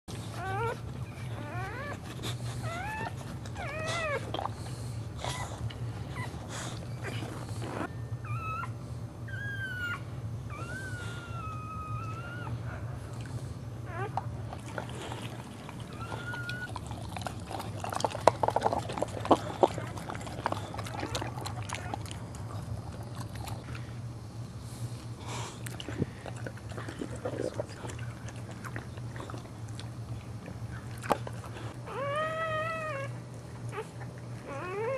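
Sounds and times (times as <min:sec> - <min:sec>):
dog whining: 0:00.1 - 0:13.0, 0:13.8 - 0:23.8, 0:30.7 - 0:34.9
steady low hum: 0:00.1 - 0:34.9.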